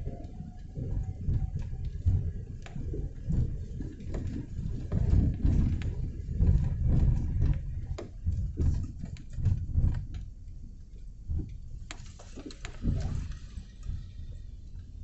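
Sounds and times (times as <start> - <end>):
raindrops tapping: 0.0 - 10.3
low uneven rumble: 0.0 - 15.0.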